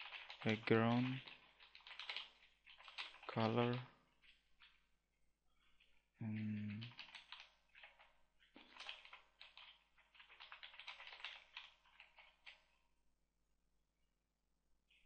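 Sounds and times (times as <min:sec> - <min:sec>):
keyboard typing: 0:00.0 - 0:04.8, 0:05.6 - 0:12.8.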